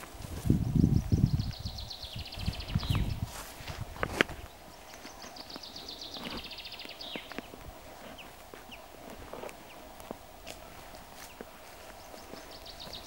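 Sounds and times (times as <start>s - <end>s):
songbird trilling: 0.6s - 3.2s, 4.7s - 8.8s.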